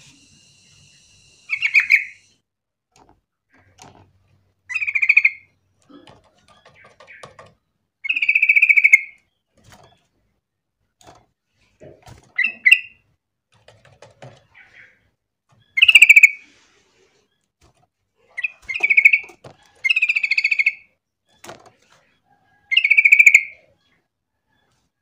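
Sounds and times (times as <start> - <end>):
bird calling bright notes: 0.0 - 2.3.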